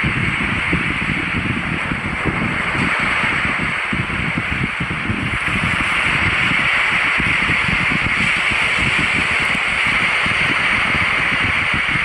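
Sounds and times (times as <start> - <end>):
small waves washing on beach: 0.0 - 12.0
wind rumble on microphone: 0.0 - 12.0.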